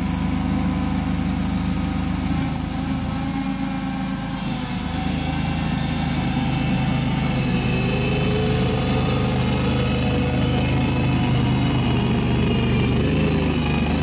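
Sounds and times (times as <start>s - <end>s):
small engine running: 0.0s - 14.0s
faint rising whine: 3.0s - 14.0s.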